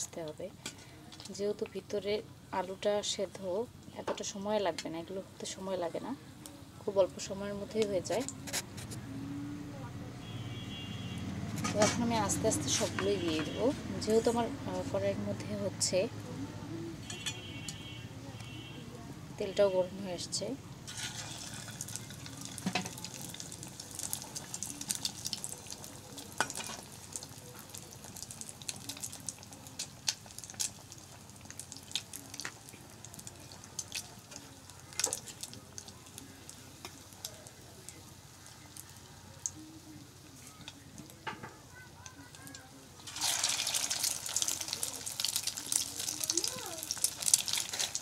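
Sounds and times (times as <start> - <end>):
food deep-frying in oil: 10.2 - 16.2, 19.4 - 48.0
crackles and pops: 20.8 - 39.7, 42.0 - 48.0.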